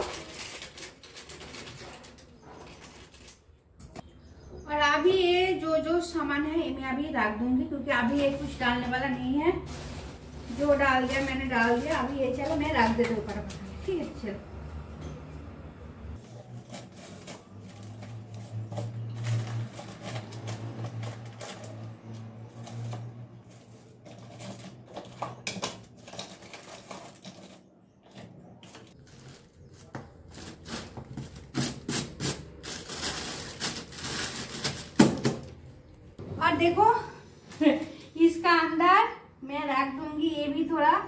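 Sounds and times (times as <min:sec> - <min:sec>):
plastic bags rustling: 0:00.0 - 0:03.8, 0:08.0 - 0:14.2, 0:16.2 - 0:27.7, 0:28.6 - 0:35.7.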